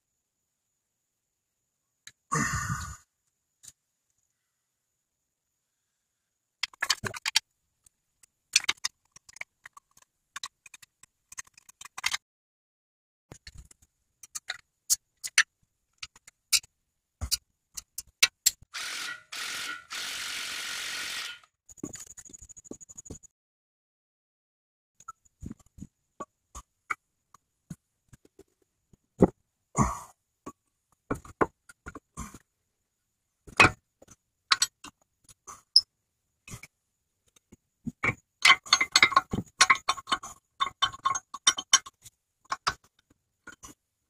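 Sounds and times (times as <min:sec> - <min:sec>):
hand tools clicking and knocking: 0:37.4 - 0:43.8.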